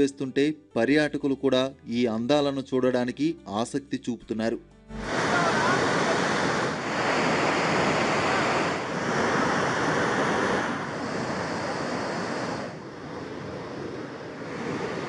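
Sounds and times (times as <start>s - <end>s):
waterfall rushing: 5.0s - 15.0s.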